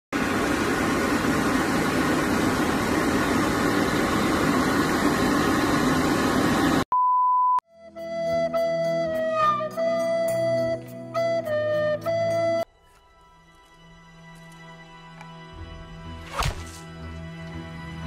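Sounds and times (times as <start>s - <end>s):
hair dryer blowing: 0.2s - 6.8s
short steady beep tone: 6.9s - 7.6s
flute music: 7.6s - 18.0s.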